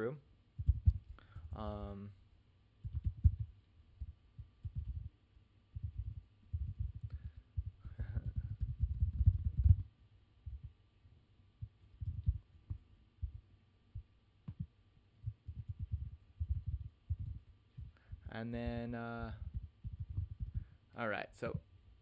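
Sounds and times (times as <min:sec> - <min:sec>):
typing on keyboard: 0:02.8 - 0:03.5, 0:15.3 - 0:17.4.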